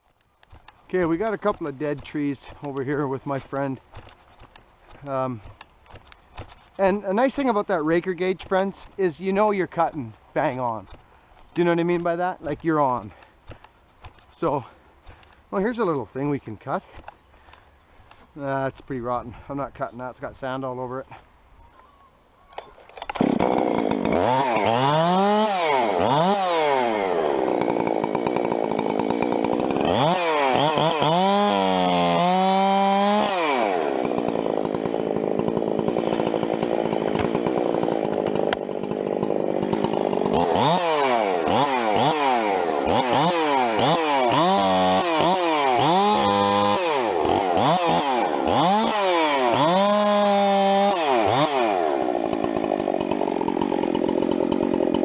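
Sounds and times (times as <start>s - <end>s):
chainsaw cutting into tree: 22.6s - 55.0s
chainsaw revving: 23.0s - 55.0s.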